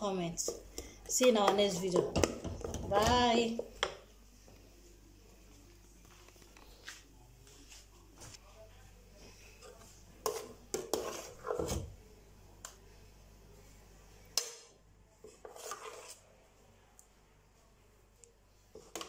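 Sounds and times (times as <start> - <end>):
metal ladle scraping a pot: 10.2 - 11.9, 15.2 - 16.2.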